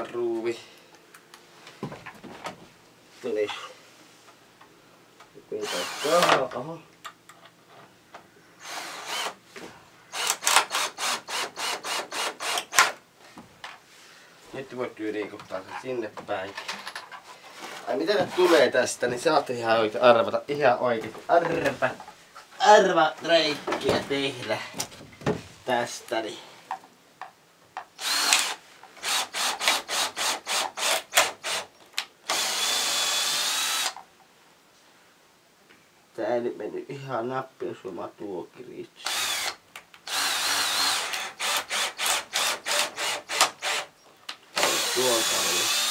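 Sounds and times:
power drill driving screw: 5.6 - 6.4, 8.6 - 9.4, 10.1 - 13.0, 28.0 - 31.7, 32.3 - 34.0, 39.0 - 43.9, 44.5 - 45.9.

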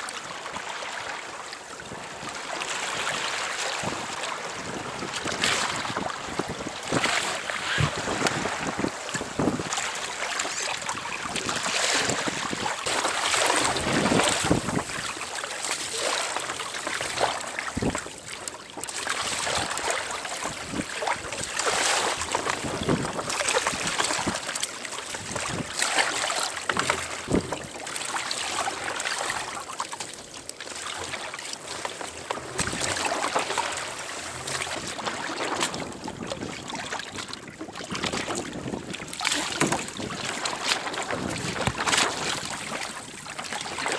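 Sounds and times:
water splashing against kayak hull: 0.0 - 43.9
wind buffeting microphone: 4.6 - 9.8, 13.6 - 15.1, 22.4 - 24.4.

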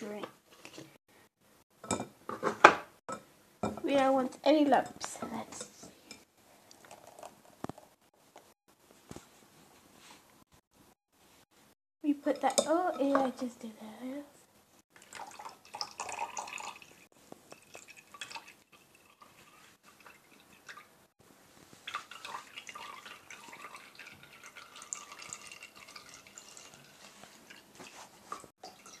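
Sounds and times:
juice dripping into bowl: 6.6 - 7.8, 14.9 - 20.9, 21.8 - 27.8.

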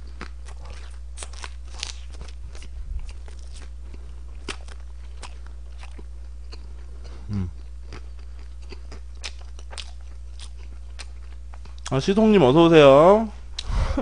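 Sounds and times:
chewing crunchy food: 0.0 - 12.0
person humming mm: 7.2 - 7.6.

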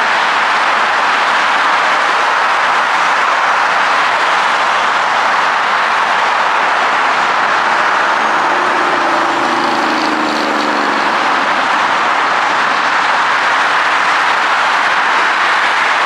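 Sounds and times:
freeway traffic noise: 0.0 - 16.0
passing vehicle engine hum: 3.9 - 16.0.

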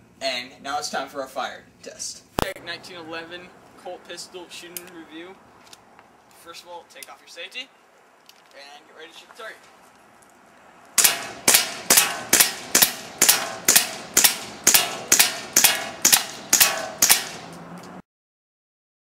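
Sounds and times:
airsoft pistol shots cracking: 11.0 - 17.5.

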